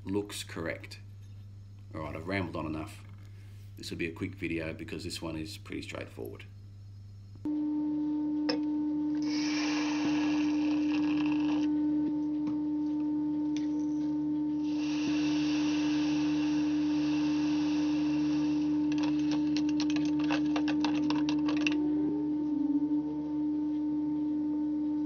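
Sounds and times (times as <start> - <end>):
steady pure tone: 0.0 - 25.0
hiss: 9.2 - 11.6, 14.6 - 19.7.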